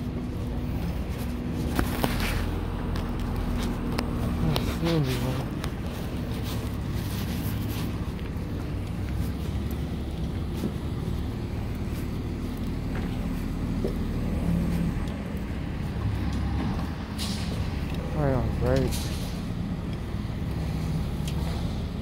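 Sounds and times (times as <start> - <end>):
heavy diesel engine droning: 0.0 - 22.0.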